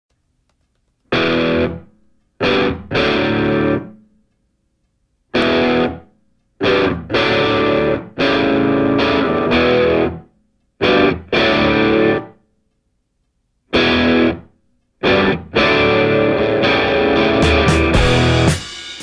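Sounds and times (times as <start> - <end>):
distorted electric guitar chord stabs: 1.1 - 1.8, 2.4 - 4.0, 5.4 - 6.0, 6.6 - 10.2, 10.8 - 12.3, 13.8 - 14.4, 15.0 - 19.0.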